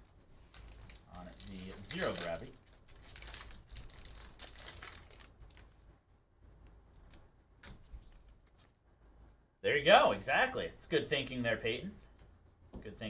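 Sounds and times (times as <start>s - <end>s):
cards being handled: 0.4s - 5.7s, 6.9s - 8.8s
foil wrapper crinkling and tearing: 0.4s - 5.8s.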